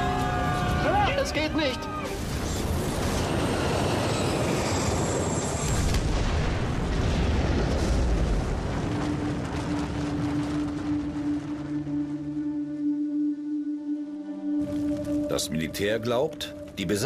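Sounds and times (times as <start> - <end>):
low music drone: 8.7 - 17.0.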